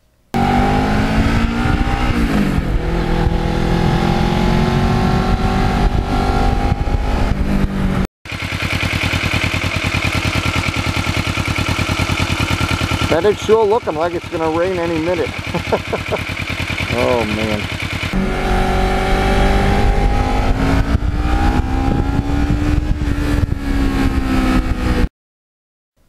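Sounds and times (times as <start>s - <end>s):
motorcycle engine running: 0.4s - 25.1s
wind noise: 0.8s - 8.1s, 18.2s - 25.1s
motorcycle engine idling: 8.3s - 18.4s.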